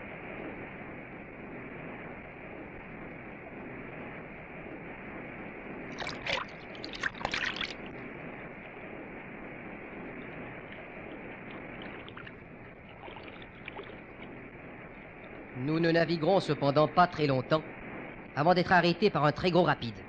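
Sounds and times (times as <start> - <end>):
sharp splashing crackles: 5.8 - 9.0, 9.8 - 17.7.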